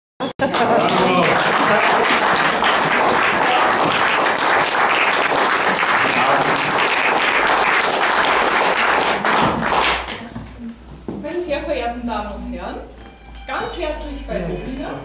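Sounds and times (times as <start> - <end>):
audience applauding: 0.3 - 10.2.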